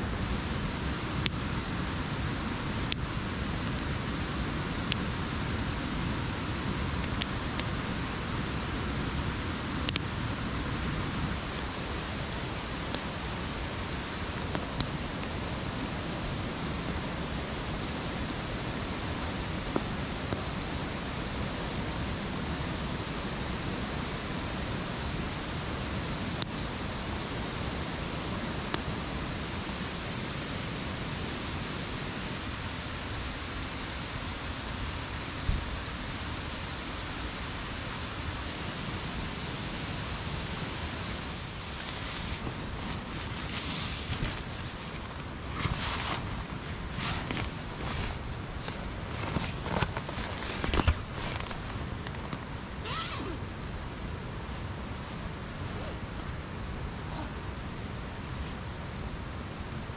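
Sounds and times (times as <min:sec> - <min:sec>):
steady rushing noise: 0:00.0 - 0:59.9
campfire crackling and popping: 0:02.8 - 0:05.2.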